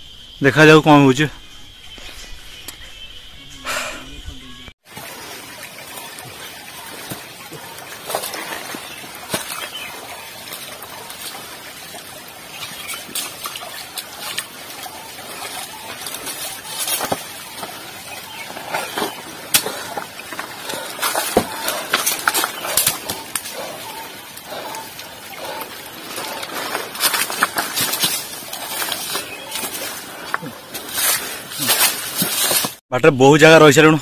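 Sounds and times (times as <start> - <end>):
footsteps on dry leaves and stones: 6.4 - 32.8.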